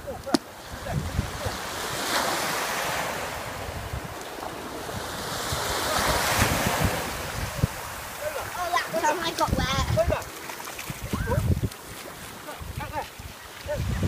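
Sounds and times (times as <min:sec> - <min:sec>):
waves washing on sandy shore: 0:00.0 - 0:14.0
wind buffeting microphone: 0:00.0 - 0:14.0.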